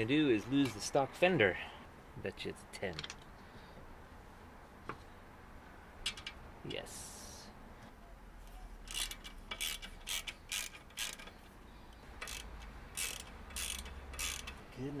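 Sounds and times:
ratchet wrench clicking: 8.8s - 11.5s, 12.2s - 14.6s.

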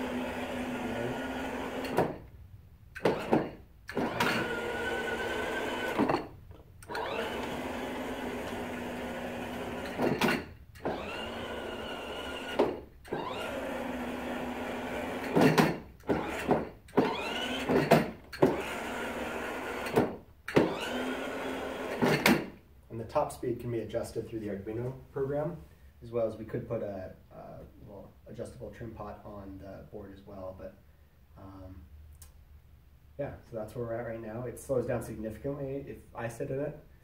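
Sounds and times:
electric motors whirring: 0.0s - 2.2s, 3.0s - 6.2s, 6.8s - 22.4s.

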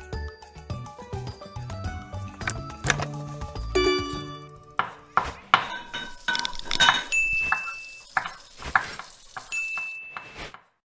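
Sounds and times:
kitchen-like clatter: 4.8s - 10.8s
clicks knocks and clinks: 5.6s - 7.7s.

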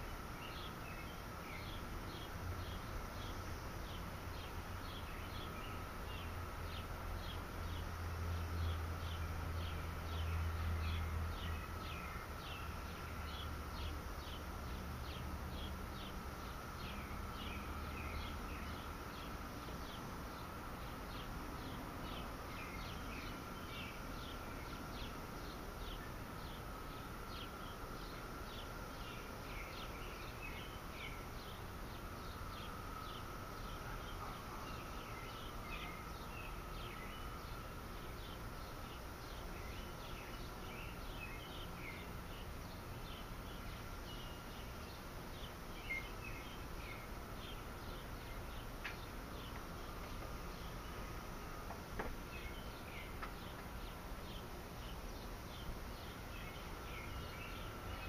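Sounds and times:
faint high hum: 0.0s - 58.0s.

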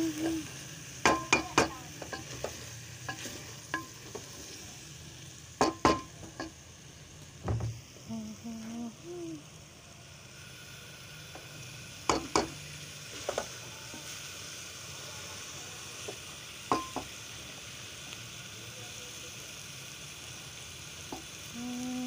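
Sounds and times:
food sizzling in a pot: 0.0s - 22.0s
spatula knocking on metal pot: 5.6s - 6.5s.

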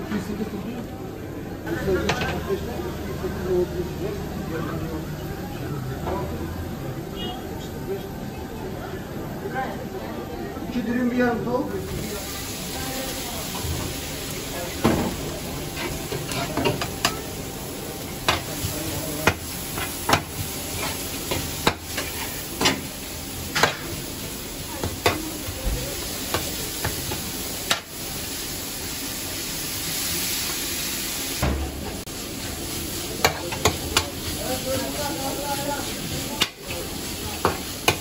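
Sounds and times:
meat sizzling in a pan: 11.8s - 38.0s.

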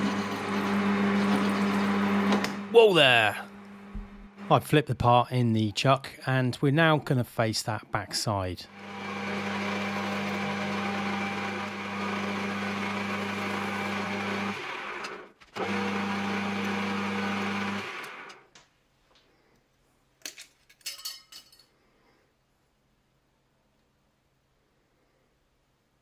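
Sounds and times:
metal lathe motor humming: 0.0s - 2.8s, 8.7s - 18.4s.

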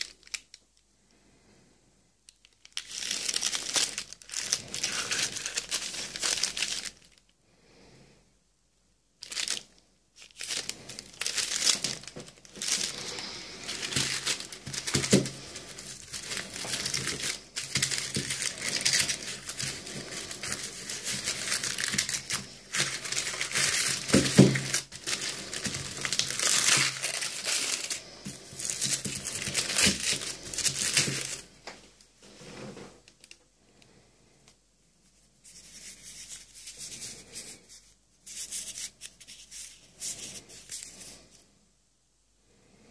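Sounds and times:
paper wrapping crinkling and tearing: 0.0s - 0.6s, 2.4s - 7.3s, 9.2s - 31.5s
paper-covered tubes rustling: 0.0s - 0.6s, 2.3s - 7.3s, 9.2s - 33.4s, 35.0s - 41.5s.

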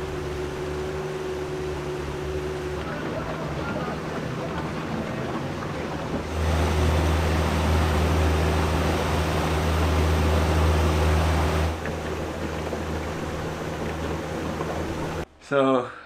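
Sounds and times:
outboard motor drone: 0.0s - 15.2s
water rushing past hull: 0.0s - 15.3s
wind: 0.0s - 16.0s.

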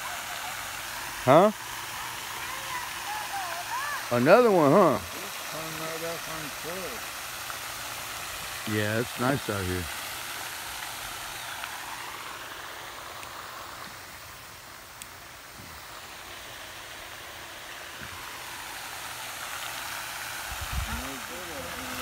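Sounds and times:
fountain spray splashing: 0.0s - 22.0s.

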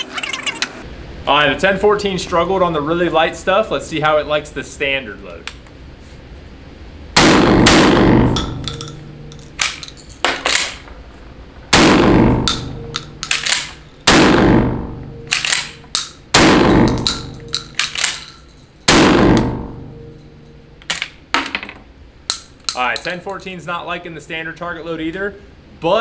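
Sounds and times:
shotgun shots ringing indoors: 7.2s - 10.8s, 11.7s - 20.1s
metallic clacks of gun action: 12.5s - 14.0s, 15.3s - 18.6s.

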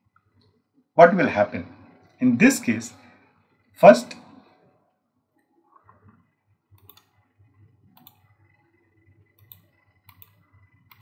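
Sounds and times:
faint computer mouse clicks: 6.8s - 7.1s, 9.4s - 11.0s.

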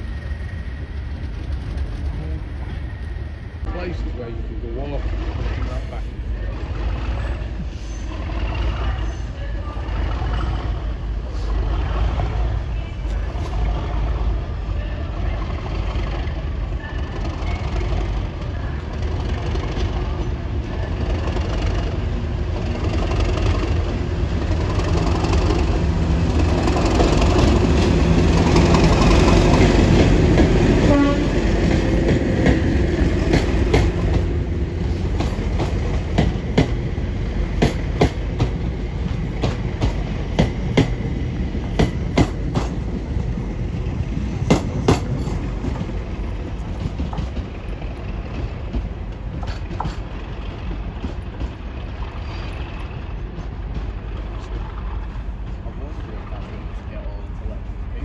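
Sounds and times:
diesel locomotive engine rumble: 0.0s - 58.0s
train wheels clacking over rail joints: 17.0s - 56.6s.

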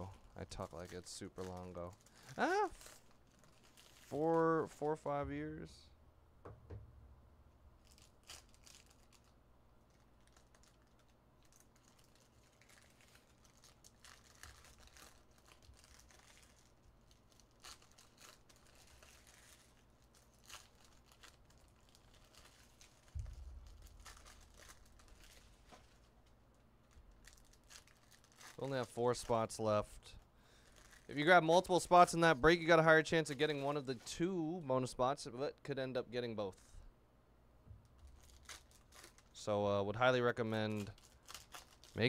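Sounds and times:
foil wrappers crinkling: 0.0s - 5.5s, 7.8s - 34.1s, 37.9s - 39.5s, 40.2s - 42.0s
faint low hum: 0.0s - 42.0s
dull thump: 6.4s - 7.2s.

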